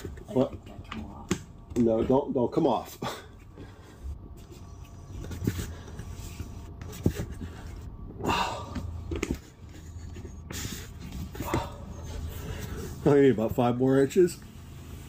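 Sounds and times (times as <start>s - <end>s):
man breathing hard with effort: 7.7s - 9.2s, 10.4s - 13.0s.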